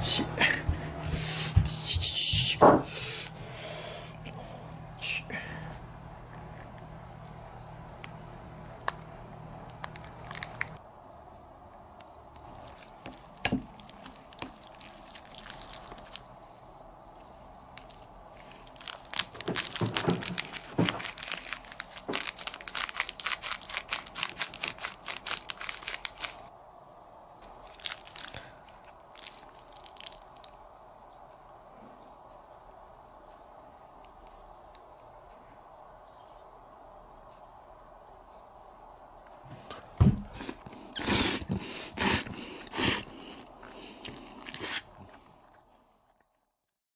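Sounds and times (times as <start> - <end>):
plastic sachet crinkling: 10.0 - 10.7, 12.5 - 16.3, 17.8 - 26.5, 27.4 - 30.5
chopsticks mixing wet noodles: 12.4 - 16.2.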